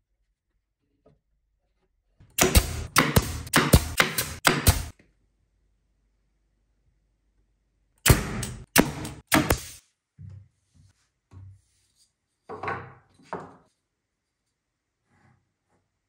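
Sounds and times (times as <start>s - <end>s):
nail gun firing into wood: 2.3s - 4.9s, 8.0s - 9.8s.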